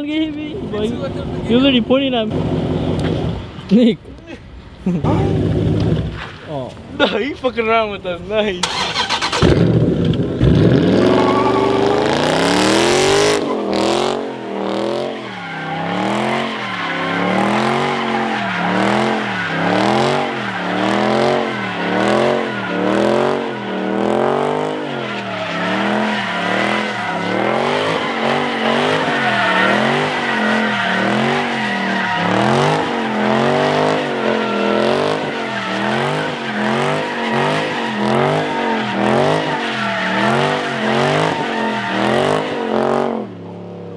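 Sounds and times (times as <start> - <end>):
car engine revving: 8.6 - 43.4
tire squeal: 10.4 - 43.3.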